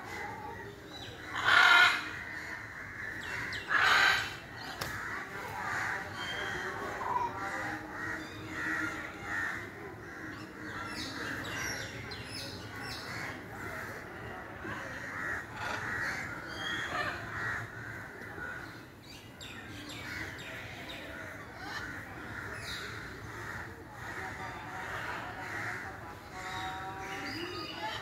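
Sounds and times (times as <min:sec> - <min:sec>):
macaws squawking: 0:01.2 - 0:11.4.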